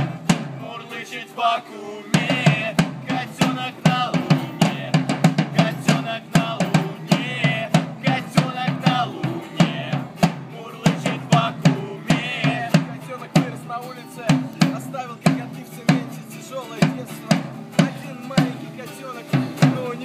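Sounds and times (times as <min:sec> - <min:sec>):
drum struck with sticks: 0:00.0 - 0:00.6, 0:02.2 - 0:13.6
acoustic guitars strumming: 0:00.0 - 0:20.0
voices singing: 0:00.0 - 0:20.0.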